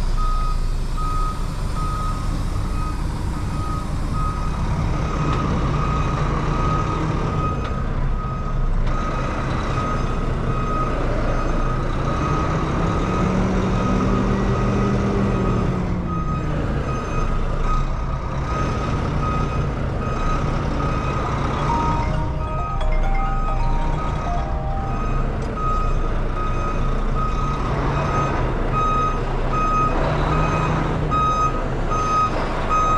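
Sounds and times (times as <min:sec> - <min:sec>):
diesel engine running: 0:00.0 - 0:32.9
backup alarm beeping: 0:19.2 - 0:27.6.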